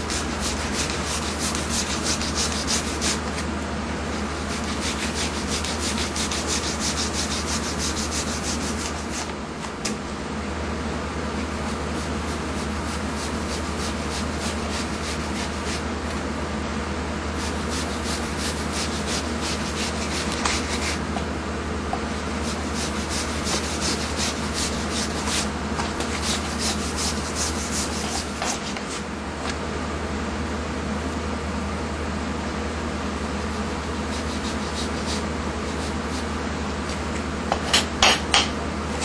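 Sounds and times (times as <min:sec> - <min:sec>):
steady low hum: 0:00.0 - 0:39.0
knife scraping fish skin: 0:00.1 - 0:03.4, 0:04.5 - 0:09.3.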